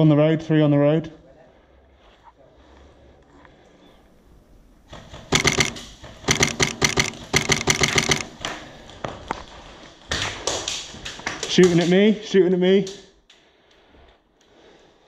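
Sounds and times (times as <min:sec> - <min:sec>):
airsoft rifle rapid shots: 0:05.3 - 0:08.4.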